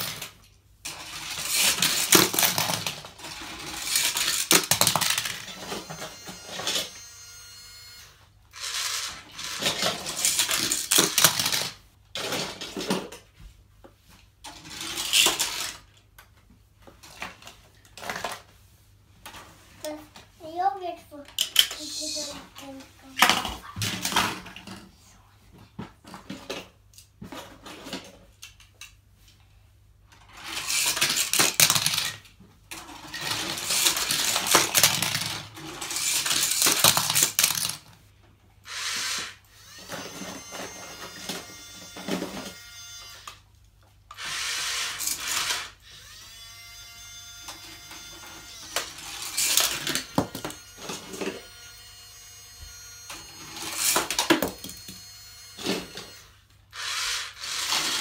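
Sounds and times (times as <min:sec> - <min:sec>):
toy cars rattling down plastic track: 0:00.0 - 0:07.4, 0:08.6 - 0:13.2, 0:14.4 - 0:16.0, 0:21.3 - 0:24.8, 0:30.2 - 0:37.9, 0:38.7 - 0:43.4, 0:44.1 - 0:46.8, 0:47.4 - 0:58.0.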